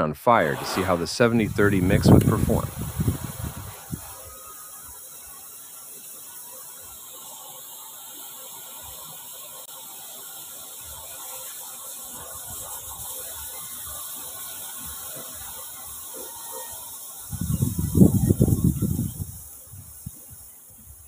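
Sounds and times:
low rush: 0.3s - 4.7s
rocket fuel burning with hissing fizz: 0.4s - 21.0s.

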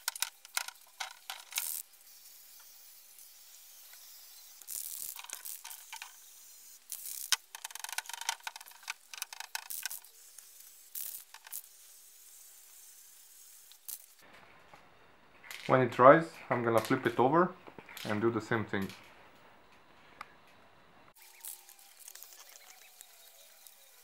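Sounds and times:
spray can ball rattling: 0.0s - 2.8s, 3.7s - 14.2s, 21.2s - 24.0s.

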